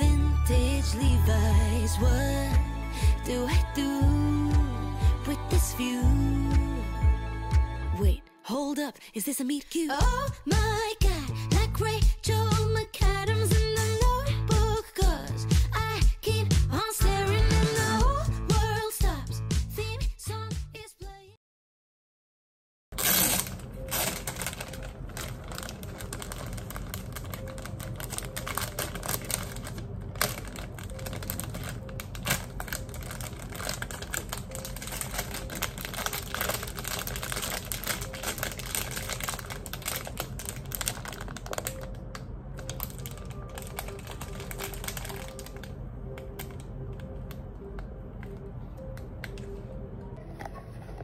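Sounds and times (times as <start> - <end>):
plastic wrapper crinkling: 23.0 - 47.4.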